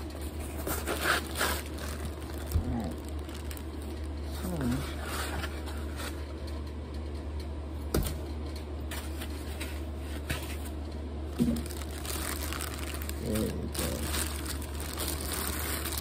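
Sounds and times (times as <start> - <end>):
plastic wrapping crinkling: 0.0 - 6.2, 11.3 - 16.0
steady low hum: 0.0 - 16.0.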